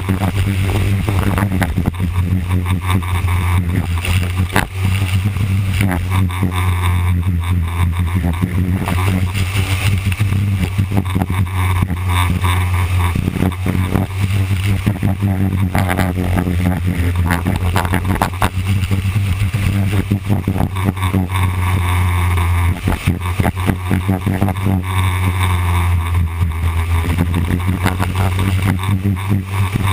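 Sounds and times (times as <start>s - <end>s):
wind buffeting microphone: 0.0s - 2.5s
race car engine running hard: 0.0s - 29.9s.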